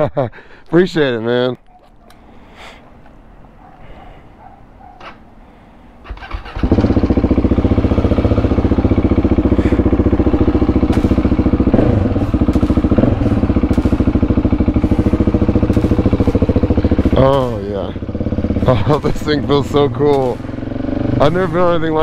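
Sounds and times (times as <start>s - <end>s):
motorcycle engine idling: 4.4s - 22.0s.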